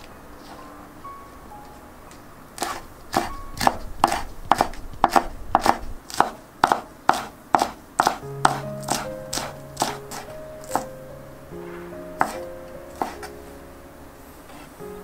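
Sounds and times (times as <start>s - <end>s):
knife chopping on wooden board: 2.6s - 10.9s, 12.2s - 12.4s, 13.0s - 13.3s.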